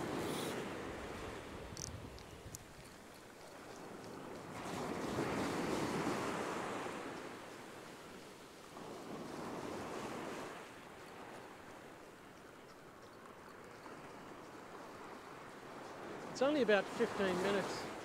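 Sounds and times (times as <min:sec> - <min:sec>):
ocean waves washing up sand: 0:00.0 - 0:18.0.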